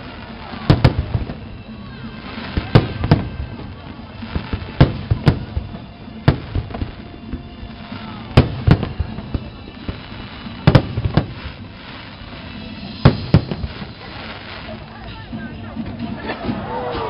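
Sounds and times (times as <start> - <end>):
firework shells bursting: 2.6 - 14.7.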